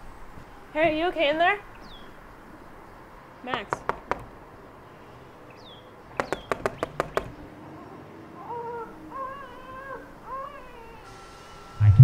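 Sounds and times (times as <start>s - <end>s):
faint baby crying: 7.8s - 11.1s.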